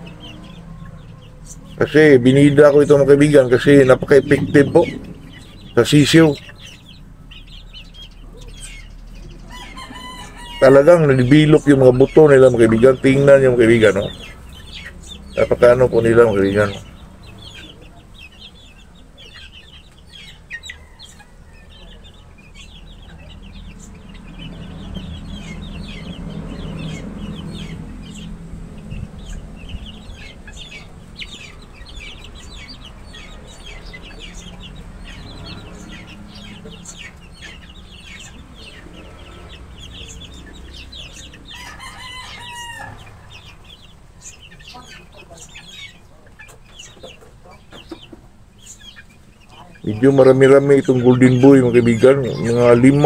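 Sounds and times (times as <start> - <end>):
low background rumble: 0.0 - 9.5
chicks peeping and chirping: 0.0 - 53.0
rooster crowing: 9.4 - 11.2, 20.4 - 22.0, 41.4 - 43.3.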